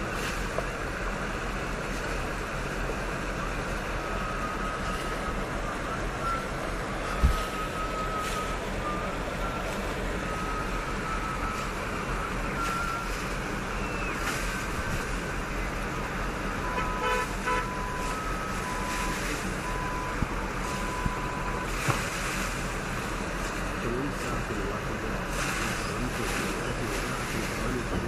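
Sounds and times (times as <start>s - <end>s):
rush of vehicles: 0.0s - 28.0s
electronic beeps: 3.4s - 15.8s, 16.4s - 21.8s
car horn toot: 16.6s - 19.4s.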